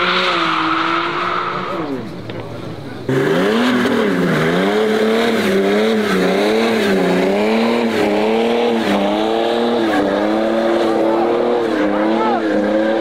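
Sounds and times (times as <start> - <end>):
car engine revving high: 3.0 - 13.0.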